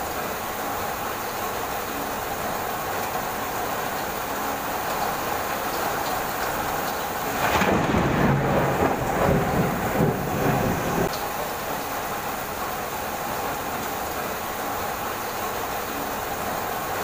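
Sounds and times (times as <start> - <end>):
heavy rain falling: 0.0 - 17.0
thunder rumbling: 7.3 - 11.1.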